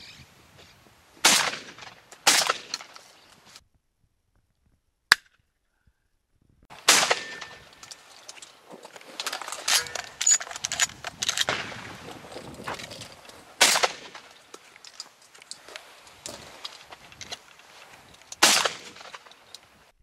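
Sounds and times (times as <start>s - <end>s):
shotgun shots with echo: 1.2s - 2.8s, 6.8s - 7.6s, 13.6s - 14.2s, 18.4s - 19.0s
gun clicks and rattles: 7.3s - 19.8s.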